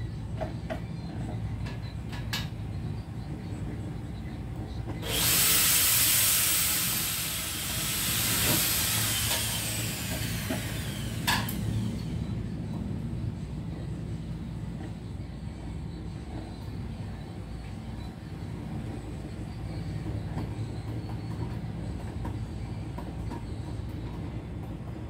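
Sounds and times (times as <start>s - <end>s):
power drill boring into metal: 5.0s - 11.8s
drill click: 5.0s - 12.0s.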